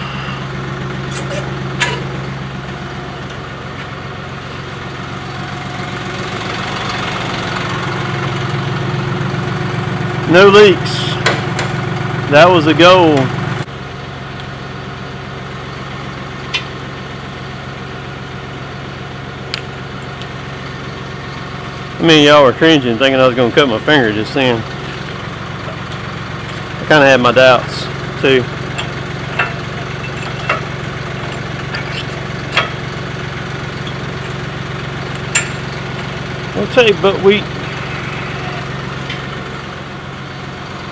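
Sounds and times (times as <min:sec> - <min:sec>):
tractor diesel engine idling: 0:00.0 - 0:40.9.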